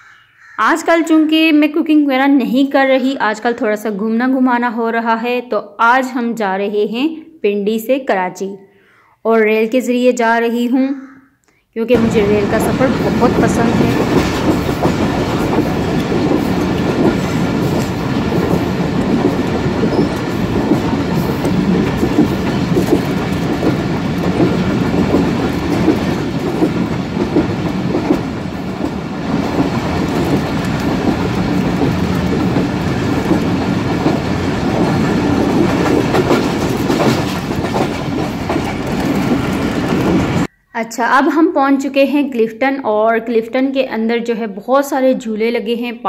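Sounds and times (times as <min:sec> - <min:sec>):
train wheels on rails: 0:11.9 - 0:40.5.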